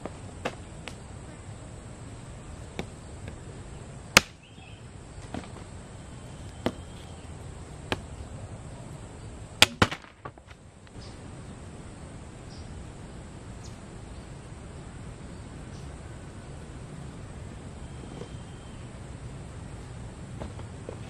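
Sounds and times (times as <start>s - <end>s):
machete chopping wood: 4.2s - 4.4s, 7.9s - 8.2s, 9.6s - 10.3s.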